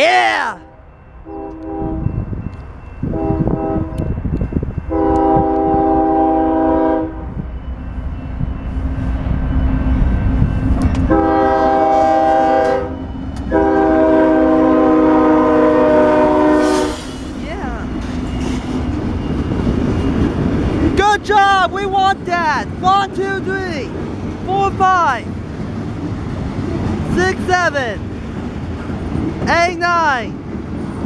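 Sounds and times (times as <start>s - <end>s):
train rumbling past: 0.0s - 31.0s
locomotive air horn blasts: 0.6s - 2.2s, 3.1s - 4.0s, 4.9s - 7.4s, 11.1s - 17.1s.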